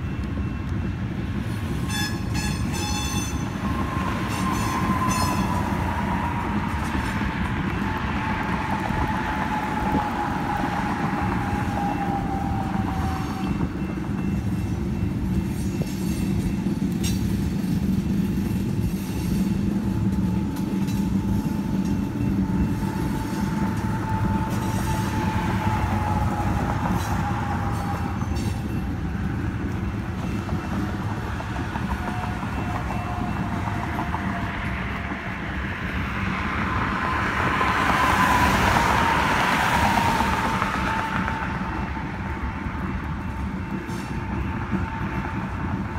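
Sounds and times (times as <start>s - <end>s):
train wheels rumbling on rail: 0.0s - 45.9s
steel wheel squeal: 1.7s - 7.1s, 7.7s - 34.4s.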